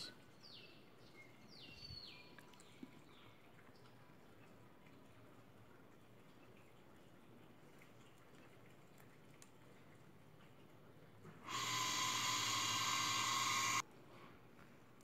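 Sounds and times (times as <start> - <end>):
loud steady rushing hiss: 11.5 - 13.8.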